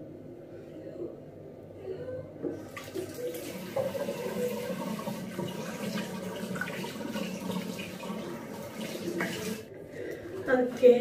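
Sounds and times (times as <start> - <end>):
tap water running into sink: 2.6 - 9.7.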